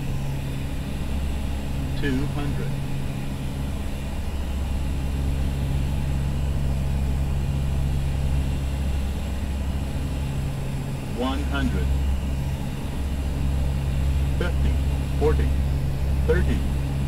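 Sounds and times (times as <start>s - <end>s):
turboprop engines droning: 0.0s - 17.0s
airflow noise: 5.4s - 17.0s.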